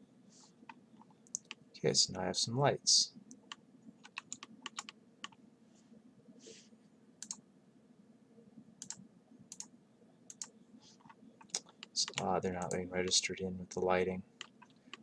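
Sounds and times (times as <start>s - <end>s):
computer keyboard and mouse clicks: 0.7s - 1.6s, 3.3s - 5.4s, 8.8s - 9.7s, 10.3s - 12.8s, 14.4s - 15.0s.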